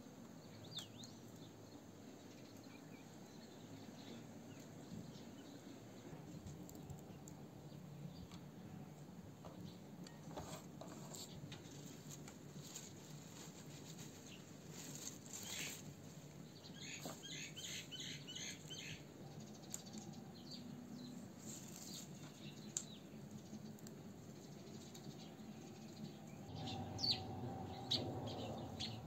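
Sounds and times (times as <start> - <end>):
herbs rustling and crackling by hand: 10.4 - 17.3, 21.4 - 24.1
small bird chirping: 14.1 - 29.0.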